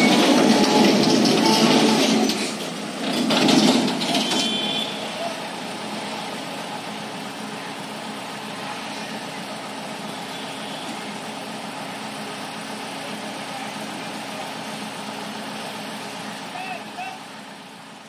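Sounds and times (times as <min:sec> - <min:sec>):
truck diesel engine running: 0:00.0 - 0:18.0.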